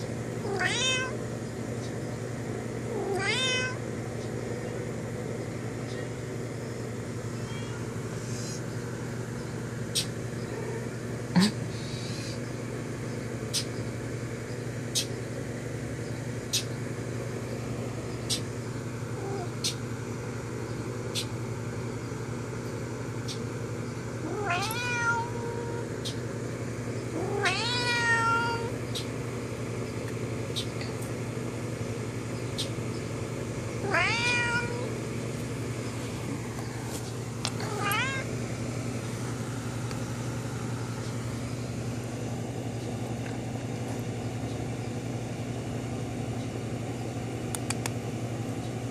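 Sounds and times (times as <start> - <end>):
steady low hum: 0.0 - 48.9
cat meowing: 0.4 - 1.2, 2.9 - 3.8, 7.4 - 8.0, 10.4 - 11.0, 24.2 - 25.9, 27.1 - 28.7, 33.8 - 34.9, 37.6 - 38.3
sharp clicks: 47.5 - 48.0.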